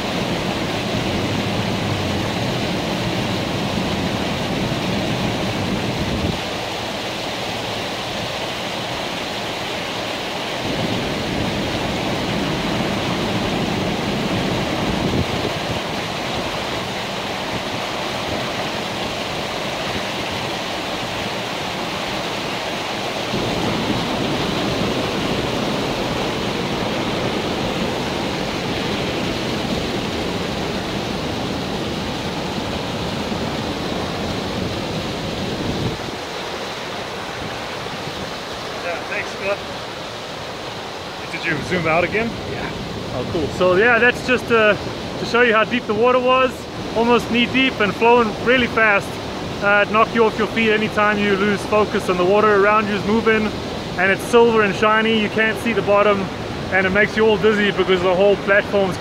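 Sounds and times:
river roaring over dam: 0:00.0 - 0:59.0.

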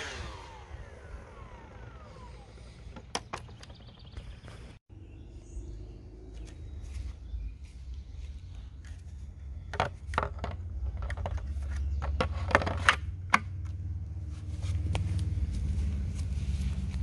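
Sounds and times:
plastic scraping and clicking: 0:09.7 - 0:13.4.

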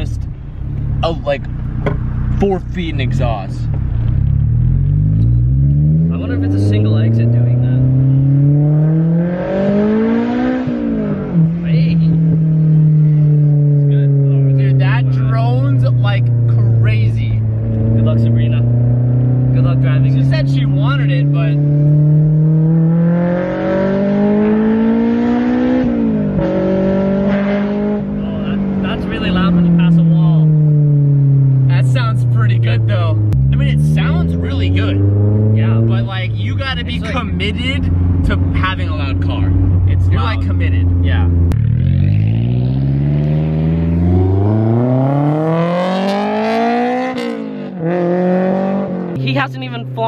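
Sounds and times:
car engine accelerating: 0:00.0 - 0:50.0.

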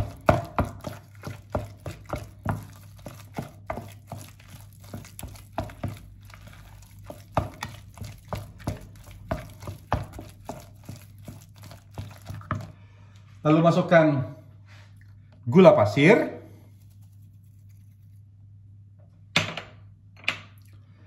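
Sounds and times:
hand squelching wet paste: 0:00.0 - 0:12.8, 0:16.6 - 0:18.3.

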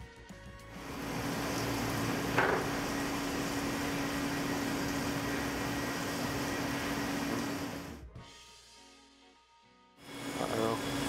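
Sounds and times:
milling machine cutting metal: 0:00.8 - 0:08.0, 0:10.1 - 0:11.0
steady hum: 0:00.8 - 0:08.0.

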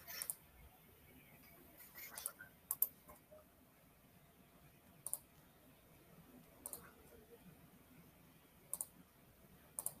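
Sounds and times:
sharp double clicks: 0:08.7 - 0:09.0, 0:09.8 - 0:10.0.

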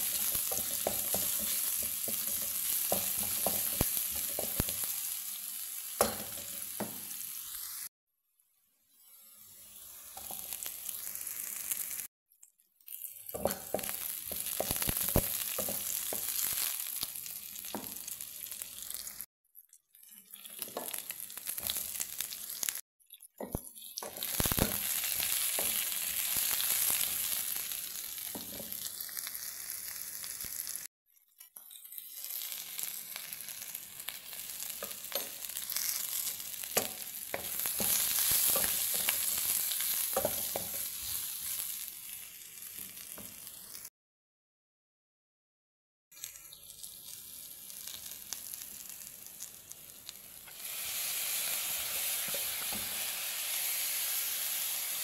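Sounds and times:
spatula clicking and scraping: 0:00.0 - 0:04.8
vegetables sizzling in oil: 0:00.0 - 0:07.9, 0:09.0 - 0:12.1, 0:12.9 - 0:19.3, 0:20.1 - 0:22.8, 0:23.4 - 0:30.9, 0:31.7 - 0:43.9, 0:46.2 - 0:55.0.

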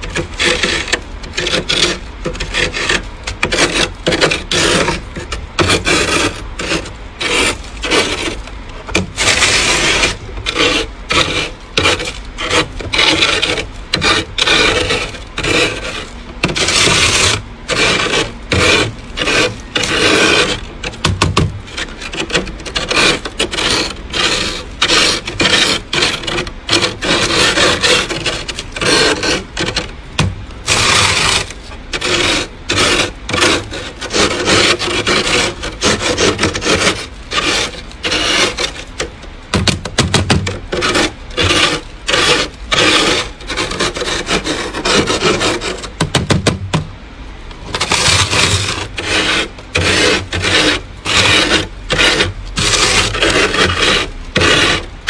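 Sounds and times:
tool scraping freezer frost: 0:00.0 - 0:46.9, 0:47.6 - 0:55.0.

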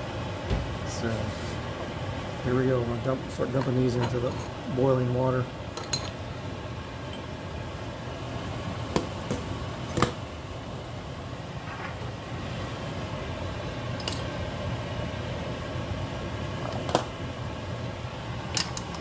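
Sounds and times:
water boiling and bubbling: 0:00.0 - 0:03.6, 0:04.3 - 0:19.0
metal pipe pieces clinking: 0:14.0 - 0:14.3, 0:18.5 - 0:19.0.

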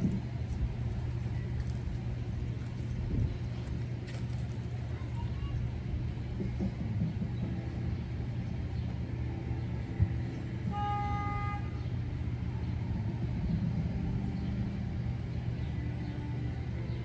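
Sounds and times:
steady low rumble: 0:00.0 - 0:17.0
car horn toot: 0:10.6 - 0:11.9.

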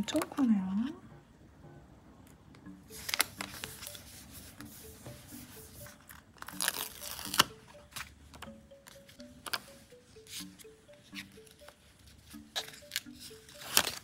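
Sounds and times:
paper rustling: 0:02.9 - 0:08.1, 0:12.2 - 0:14.0.

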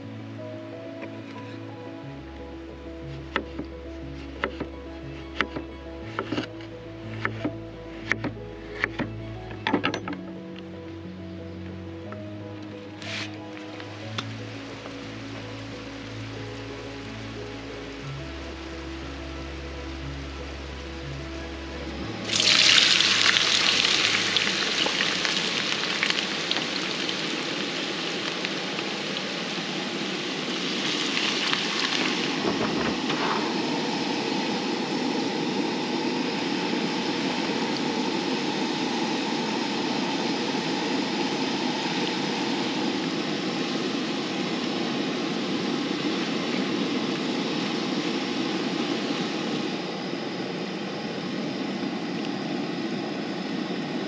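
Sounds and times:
fries sizzling in hot oil: 0:22.2 - 0:32.7.

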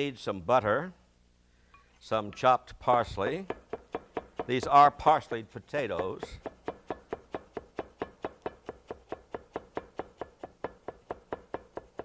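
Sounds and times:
knife chopping on wooden board: 0:03.4 - 0:04.7, 0:05.9 - 0:12.0.

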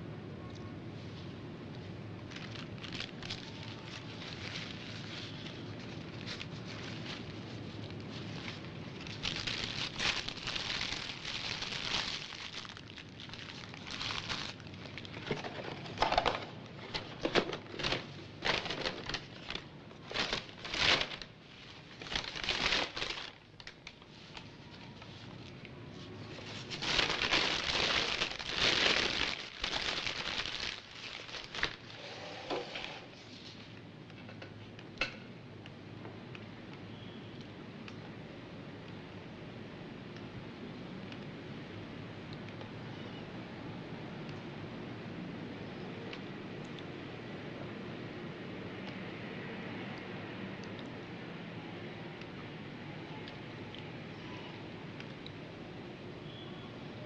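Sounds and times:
paper wrappers crumpling: 0:02.2 - 0:33.6.

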